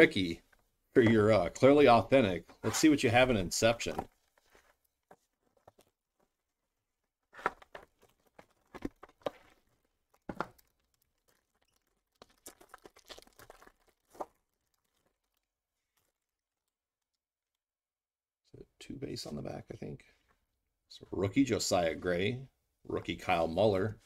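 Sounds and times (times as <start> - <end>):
wrapper tearing and crinkling: 7.4 - 16.3.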